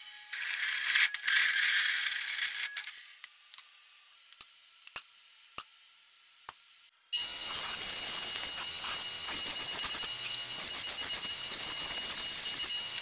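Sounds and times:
bandsaw cutting steel pipe: 7.2s - 13.0s.

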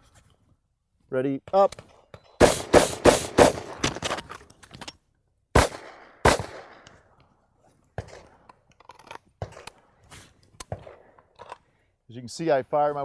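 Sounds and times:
pistol shots with echo: 2.4s - 3.8s, 5.6s - 6.8s
rifle shot: 2.4s - 3.9s, 5.5s - 6.9s, 8.0s - 8.4s
weapons handling clicks: 10.5s - 11.7s.

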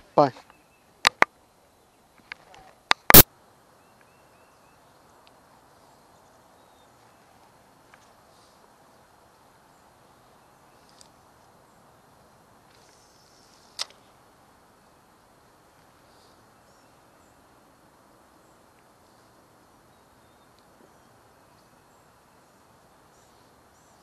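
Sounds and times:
soft outdoor hiss: 0.0s - 24.0s
small clicks: 13.7s - 14.0s.

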